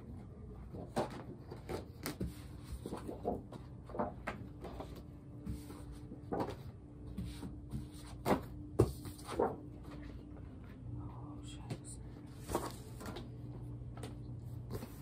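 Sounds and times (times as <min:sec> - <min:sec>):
faint steady hum: 0:00.0 - 0:15.0
paper rustling and flapping: 0:00.6 - 0:10.1.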